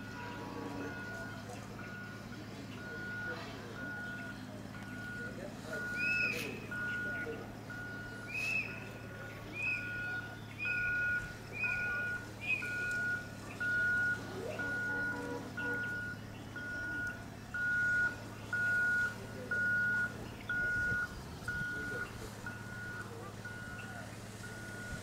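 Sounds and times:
electronic warning beeper: 9.6 - 25.0.

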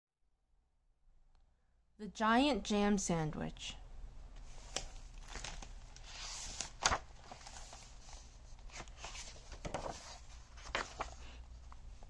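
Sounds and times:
book pages turning: 4.4 - 12.0.

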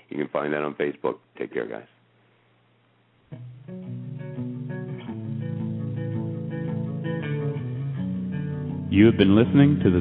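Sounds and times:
plucked guitar music: 3.3 - 10.0.

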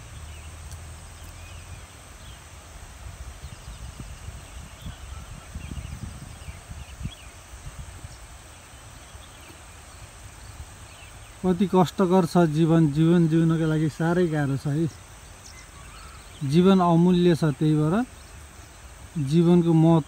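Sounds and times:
small birds chirping: 0.0 - 20.0
wind buffeting on microphone: 2.2 - 11.4.

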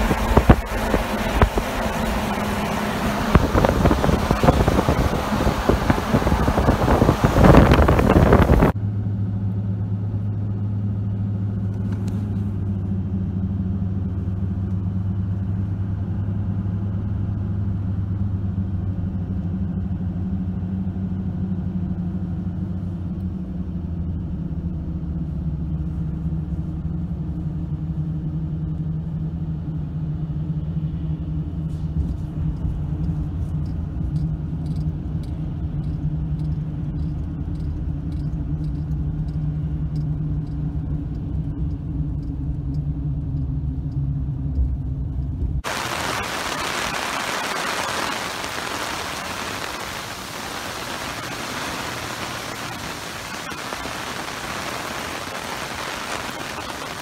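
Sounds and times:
rushing wind and tyre noise: 0.0 - 8.8, 31.2 - 57.0
engine and road drone: 0.0 - 57.0.

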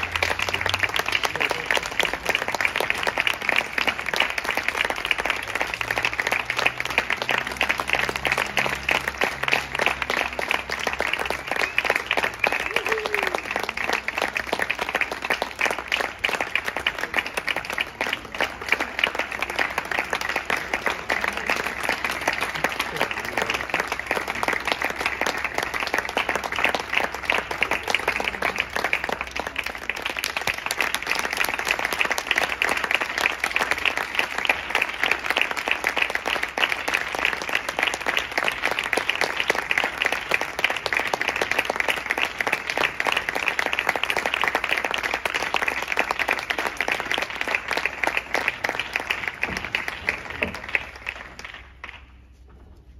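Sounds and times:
audience applauding: 0.0 - 52.5.

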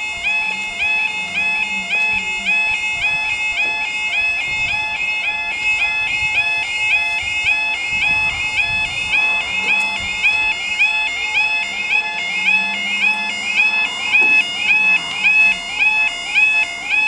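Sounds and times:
level crossing alarms warbling: 0.0 - 17.0.

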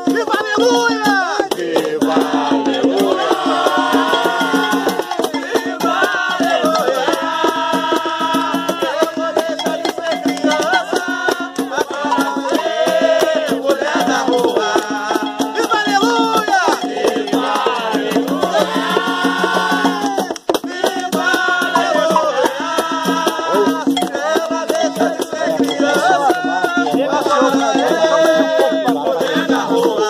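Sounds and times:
group of voices singing: 0.0 - 30.0
hand drums: 0.0 - 30.0
rattling shaker: 0.0 - 30.0.

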